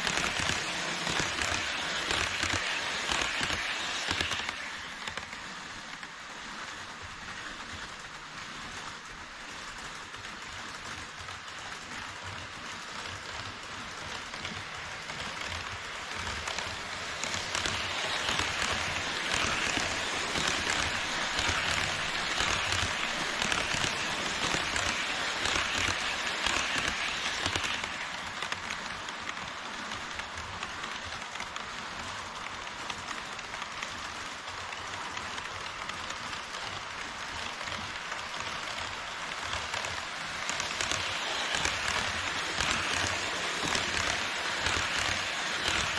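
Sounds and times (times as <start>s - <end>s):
model train wheels rattling: 0.0s - 45.9s.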